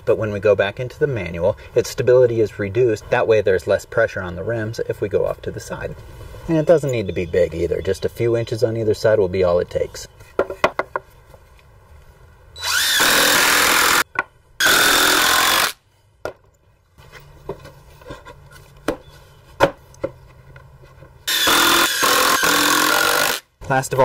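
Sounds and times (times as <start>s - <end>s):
wood knocking: 10.4s - 11.1s.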